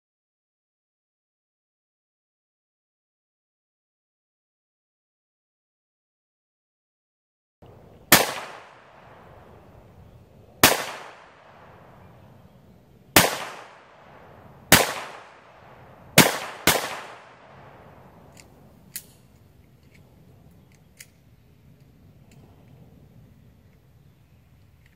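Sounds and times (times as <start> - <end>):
gunshots with echo: 8.1 - 9.8, 10.6 - 12.3, 13.1 - 18.3.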